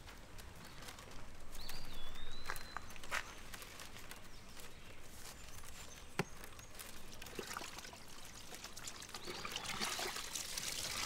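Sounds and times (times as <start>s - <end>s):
water running from a hose: 7.1s - 11.0s.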